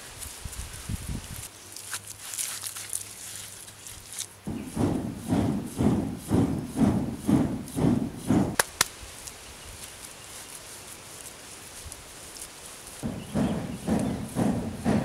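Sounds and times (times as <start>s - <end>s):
bellows puffing air: 4.5s - 8.6s, 13.0s - 15.0s.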